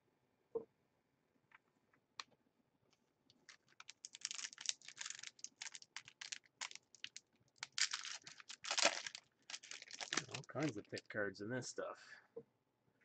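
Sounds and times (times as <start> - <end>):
foil wrapper crinkling: 3.4 - 11.0.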